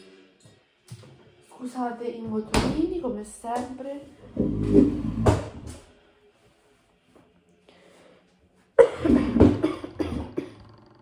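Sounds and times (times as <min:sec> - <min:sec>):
woman coughing: 0:08.8 - 0:10.7.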